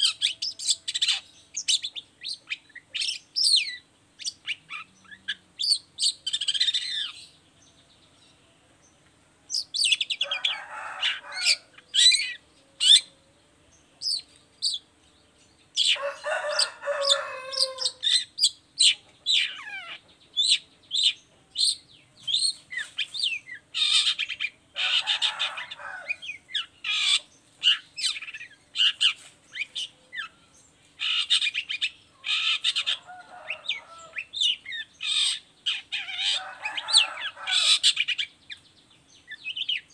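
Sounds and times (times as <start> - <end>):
bird chattering: 15.7 - 30.3, 31.0 - 38.6.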